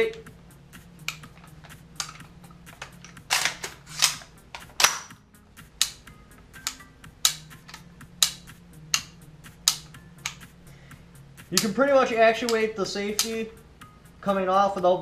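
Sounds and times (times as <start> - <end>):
rifle action metal clacks: 1.0 - 5.1.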